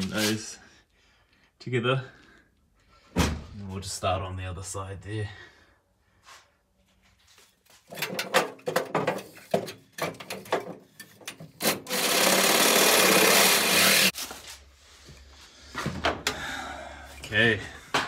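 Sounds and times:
reciprocating saw cutting sheet metal: 11.6s - 14.2s.

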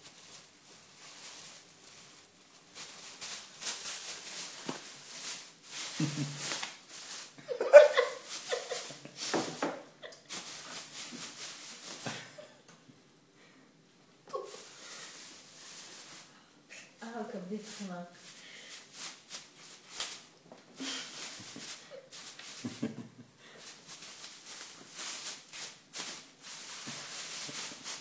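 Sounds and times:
plastic bag crinkling: 0.0s - 12.4s, 14.3s - 16.3s, 17.4s - 22.9s, 23.6s - 28.0s
person laughing: 6.0s - 6.4s, 7.4s - 9.3s, 22.6s - 23.3s.

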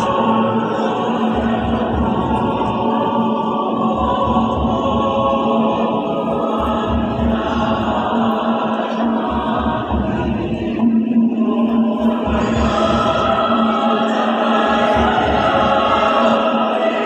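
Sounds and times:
choir singing: 0.0s - 17.0s.

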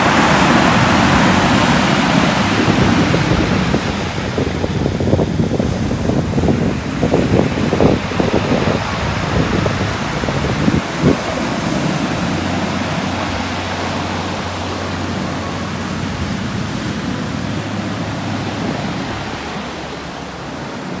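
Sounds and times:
surf breaking on pebble beach: 0.0s - 21.0s
wind buffeting microphone: 0.0s - 21.0s.

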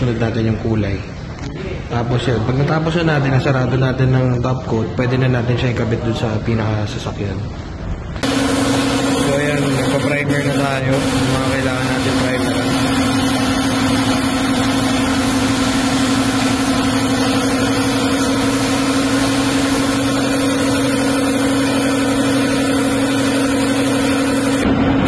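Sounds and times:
motor hum: 8.1s - 25.0s
paint spray gun hissing: 8.2s - 24.6s.

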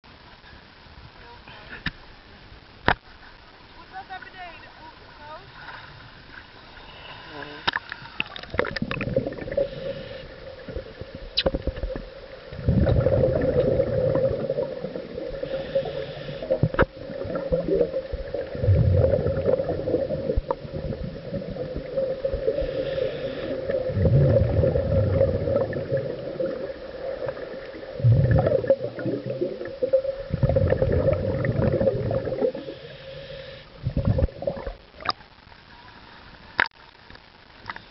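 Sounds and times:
gurgling exhaled bubbles: 7.8s - 35.2s.

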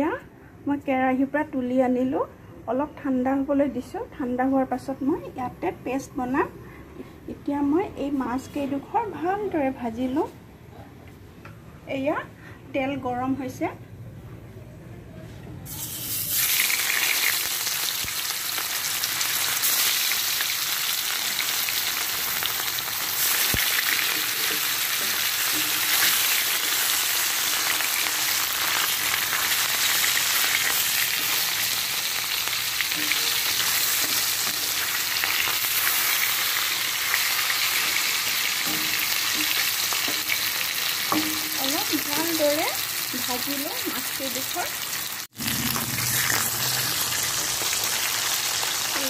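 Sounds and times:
fish sizzling in hot oil: 15.7s - 49.0s.

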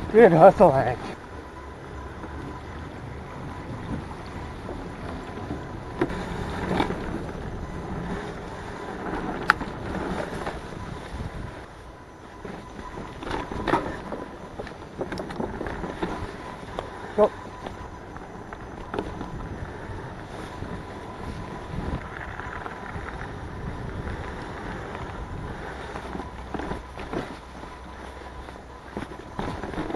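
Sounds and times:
bike clacking over bumps: 0.0s - 29.9s
bike tyre rumble: 0.0s - 29.9s
wind noise: 0.0s - 29.9s
bike knocking over bumps: 12.3s - 16.9s, 28.8s - 29.9s.

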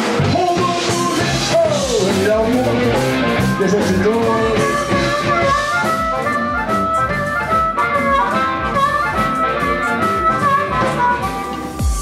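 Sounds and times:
amplified blues harmonica: 2.4s - 12.0s.

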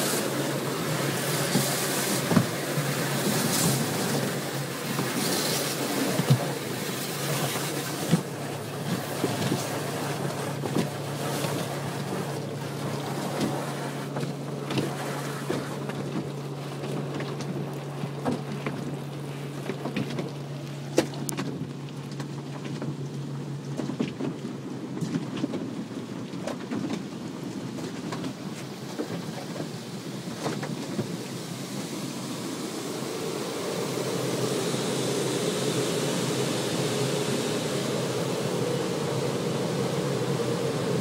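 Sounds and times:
car wash brushes and water spray: 0.0s - 41.0s
steady low hum: 28.3s - 41.0s.

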